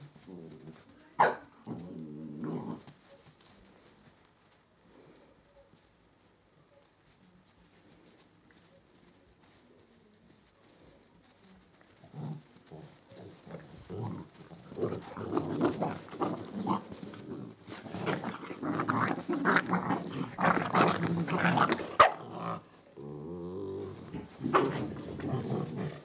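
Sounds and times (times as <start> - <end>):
dogs growling in play: 0.0 - 0.9, 1.5 - 3.0, 11.9 - 26.0.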